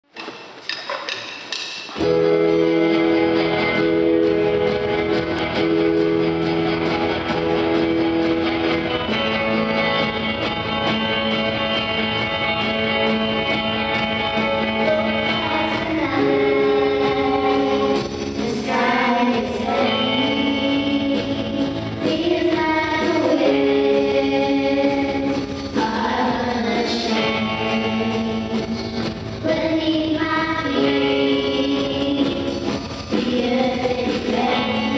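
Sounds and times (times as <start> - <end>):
held instrumental chords: 2.0 - 34.9
voices singing a hymn: 14.8 - 34.9.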